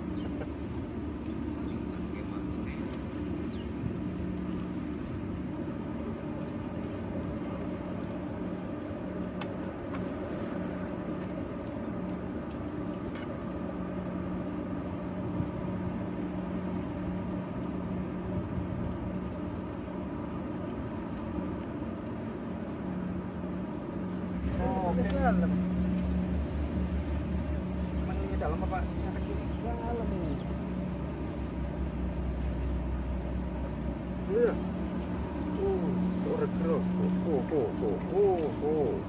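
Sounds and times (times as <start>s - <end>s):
engine droning: 0.0s - 39.0s.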